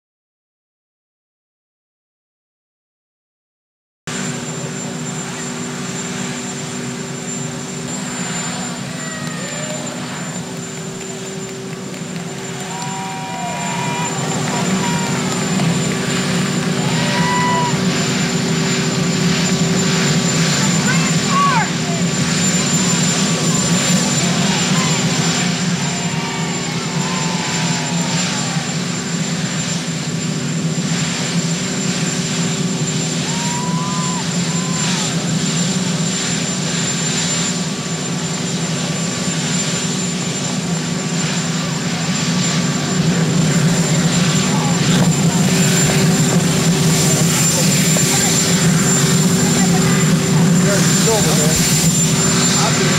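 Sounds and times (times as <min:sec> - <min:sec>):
helicopter turbine engines running: 0:04.1 - 0:52.9.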